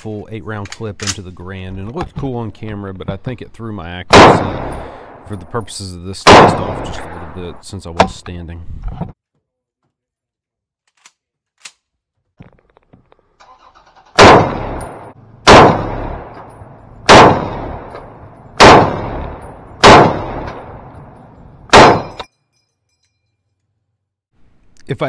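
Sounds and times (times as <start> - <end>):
rifle handling clicks and rattles: 0.6 - 1.2, 10.8 - 11.9
rifle shots with echo: 4.1 - 5.5, 6.2 - 7.6, 14.2 - 22.2.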